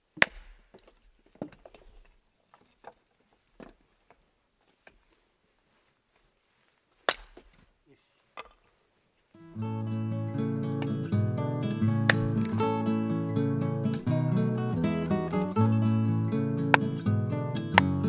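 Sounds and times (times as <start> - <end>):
axe chopping wood: 0.2 - 1.6, 7.0 - 7.6, 11.9 - 12.6, 16.6 - 18.0.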